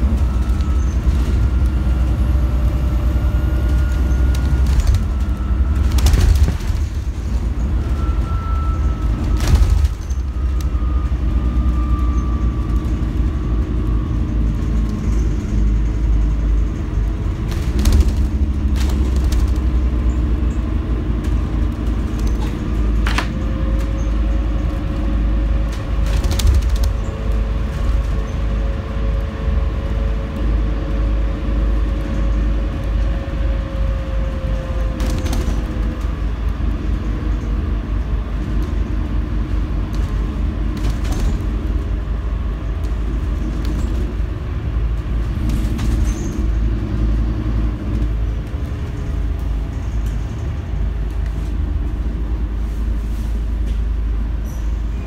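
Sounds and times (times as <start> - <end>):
whine: 0.0 - 43.9
knocks and rattles over bumps: 0.0 - 52.5
bus engine and road rumble: 0.0 - 55.0.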